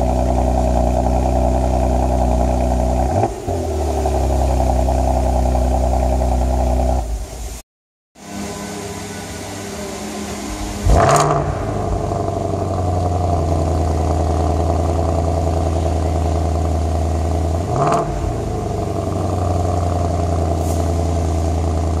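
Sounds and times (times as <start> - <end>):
car engine cold-starting and idling: 0.0 - 7.6, 8.2 - 22.0.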